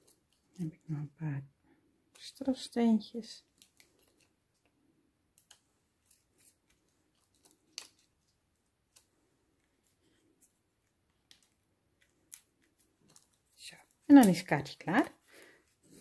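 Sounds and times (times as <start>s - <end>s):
plastic sheet clicks and crinkles: 3.4s - 15.2s.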